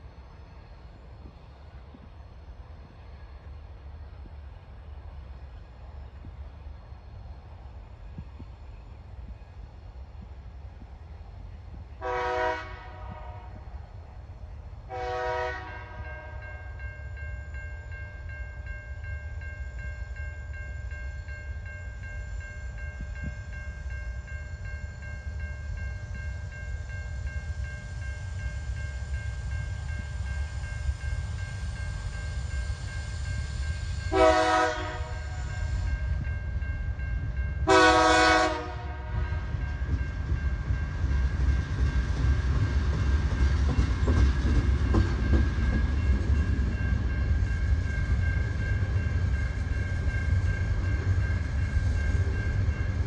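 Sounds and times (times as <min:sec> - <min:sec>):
locomotive horn blasts: 0:12.0 - 0:13.6, 0:14.9 - 0:16.4, 0:34.1 - 0:36.0, 0:37.6 - 0:39.6.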